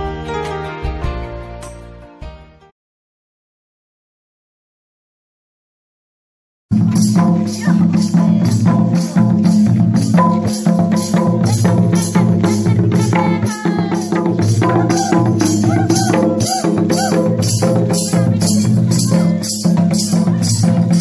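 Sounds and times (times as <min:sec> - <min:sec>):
hand drum beat: 0:06.7 - 0:21.0
jingling percussion: 0:06.7 - 0:21.0.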